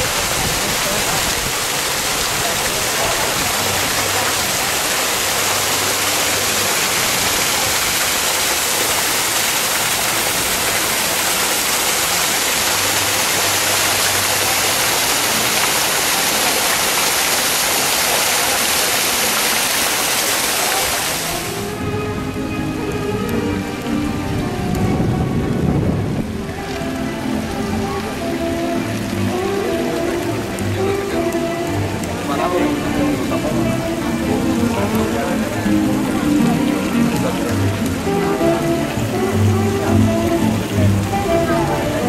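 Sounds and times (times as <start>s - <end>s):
fountain water splashing into basin: 0.0s - 42.0s.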